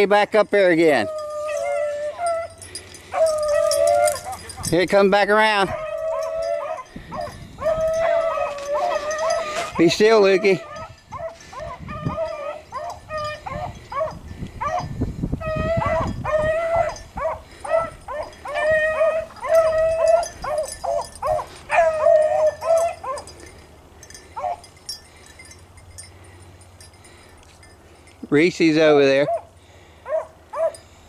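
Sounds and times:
hounds baying: 0.6 - 28.2, 29.1 - 31.0.

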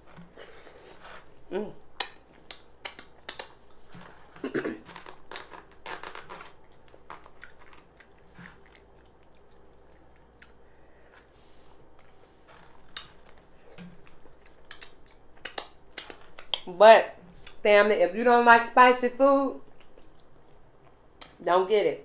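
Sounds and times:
person chewing with wet smacks: 0.2 - 16.7, 19.6 - 21.4.

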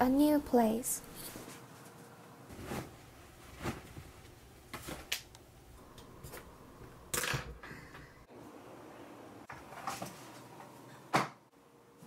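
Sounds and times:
handling rustles and light knocks: 1.2 - 5.2.

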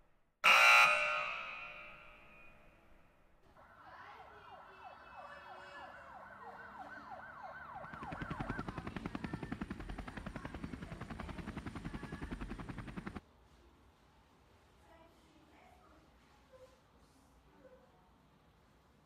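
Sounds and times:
emergency siren wailing: 0.4 - 2.0, 3.6 - 13.2
helicopter rotor blades chopping: 5.8 - 13.2.

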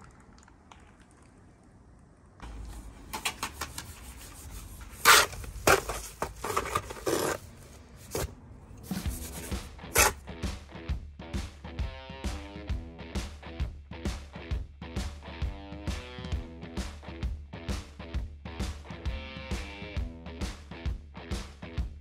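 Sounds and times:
trowel scraping mortar in bucket: 4.5 - 10.2
background music: 8.2 - 22.0.

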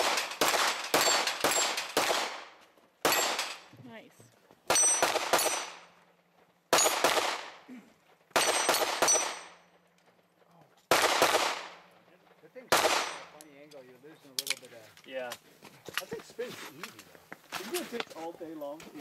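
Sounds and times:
gunshot echo: 0.0 - 3.5, 6.7 - 7.7, 10.9 - 11.8, 12.7 - 13.4
carbine gunshots: 0.0 - 3.7, 4.7 - 6.0, 6.7 - 7.7, 8.3 - 9.7, 10.9 - 12.0, 12.7 - 13.4.

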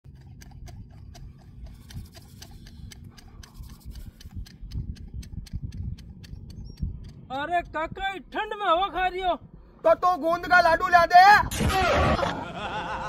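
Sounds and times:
rapid regular ticking: 0.0 - 8.6
wind rumble on microphone: 1.6 - 11.6.

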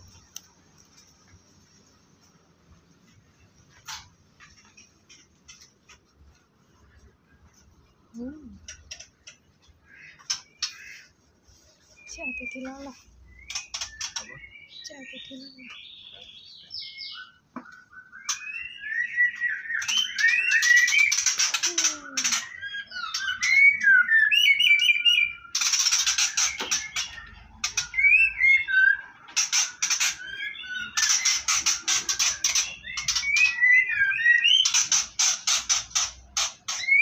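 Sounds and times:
harsh rasping bird chatter: 8.6 - 16.7, 17.8 - 37.0
birds whistling chirps: 11.8 - 37.0.

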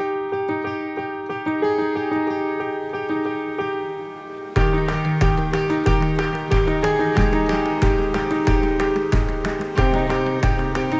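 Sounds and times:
steady beat: 4.6 - 10.9.

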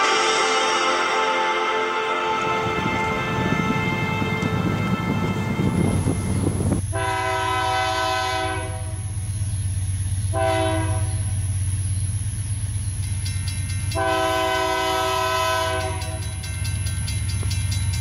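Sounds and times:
locomotive air horn blasts: 0.0 - 9.2, 10.3 - 11.4, 14.0 - 16.4
train rumbling: 0.0 - 18.0.

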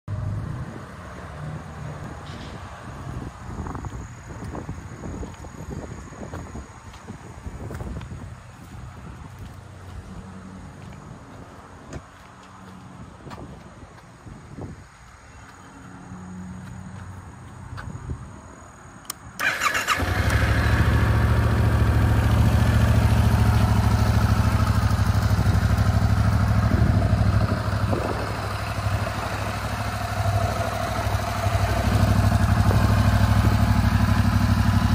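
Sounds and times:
motorcycle electric starter cranking: 19.4 - 20.9
motorcycle engine idling: 19.4 - 34.9.

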